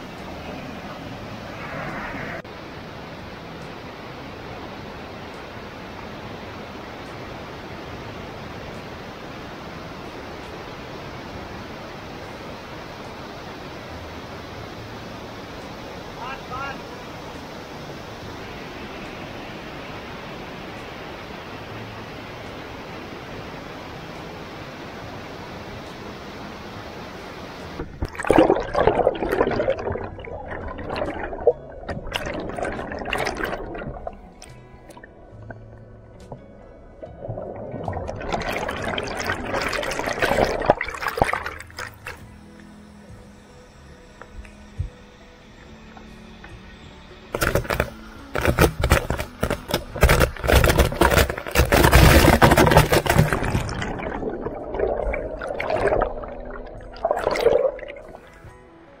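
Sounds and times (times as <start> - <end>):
water splashing and gurgling: 0.0 - 24.2, 26.9 - 42.2, 47.3 - 58.5
crackling hits on microphone: 47.4 - 54.7.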